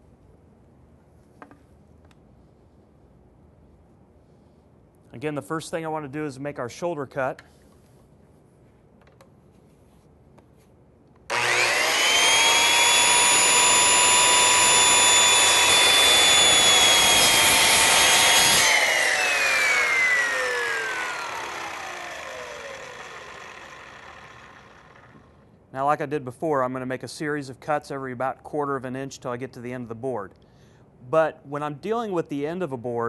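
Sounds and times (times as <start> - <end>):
circular saw cutting wood: 11.3 - 25.3
saw blade spinning down: 11.3 - 25.4.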